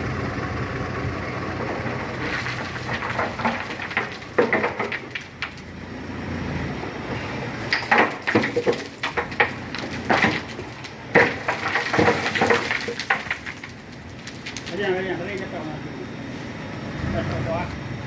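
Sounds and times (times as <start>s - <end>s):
diesel truck engine rumbling: 0.0s - 18.0s
stones knocking and cracking: 1.6s - 5.9s, 7.7s - 15.5s.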